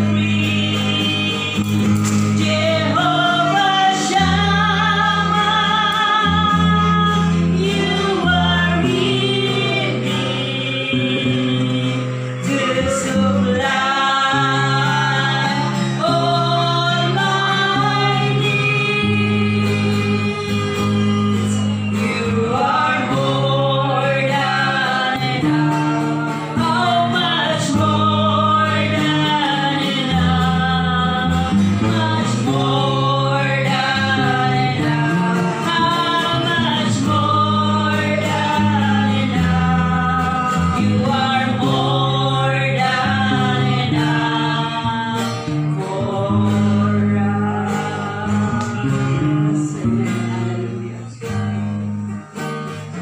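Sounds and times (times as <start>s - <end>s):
woman singing into microphone: 0.0s - 52.2s
acoustic guitar strumming: 0.0s - 53.0s.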